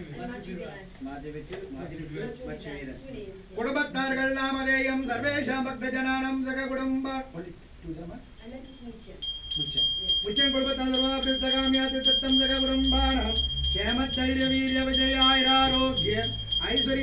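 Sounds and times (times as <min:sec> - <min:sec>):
hand bell ringing rapidly: 0:09.2 - 0:17.0
long held pitched tones: 0:09.2 - 0:17.0.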